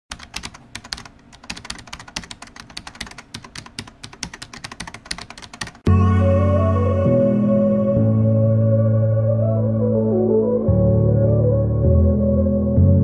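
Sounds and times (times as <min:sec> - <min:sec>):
computer keyboard typing: 0:00.1 - 0:05.9
music: 0:05.9 - 0:13.0.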